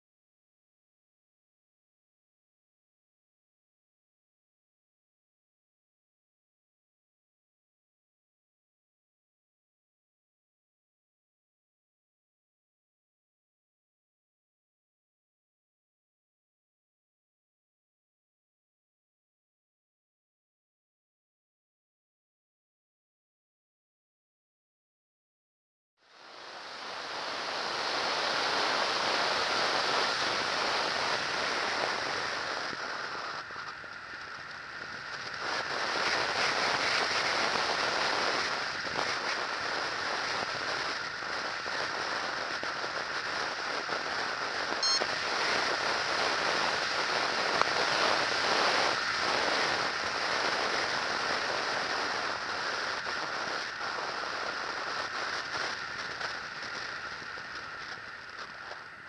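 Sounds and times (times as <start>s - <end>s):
electric motor and propeller: 26.1s - 59.0s
wind rushing past camera: 26.1s - 59.0s.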